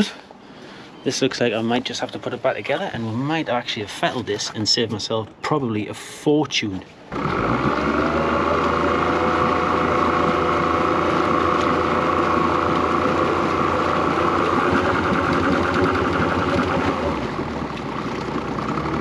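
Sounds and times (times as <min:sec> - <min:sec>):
outboard motor running: 0:07.1 - 0:19.0.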